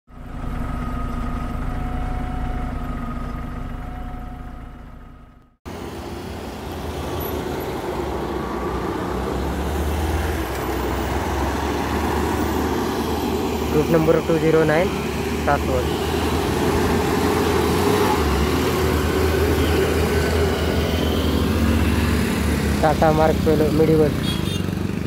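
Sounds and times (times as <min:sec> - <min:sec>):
low engine rumble: 0:00.1 - 0:06.0
vehicle engines and tyre noise: 0:00.1 - 0:25.0.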